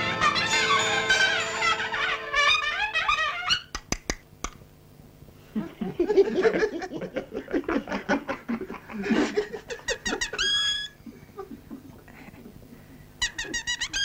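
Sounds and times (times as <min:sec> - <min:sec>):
high-pitched squeaks: 0:00.0 - 0:03.8, 0:10.1 - 0:11.0
stifled giggling: 0:05.5 - 0:12.7.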